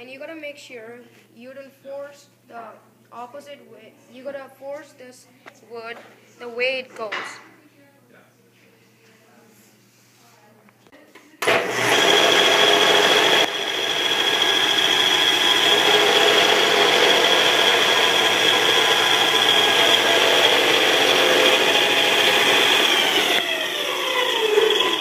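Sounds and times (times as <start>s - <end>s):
belt sander whining: 11.4s - 25.0s.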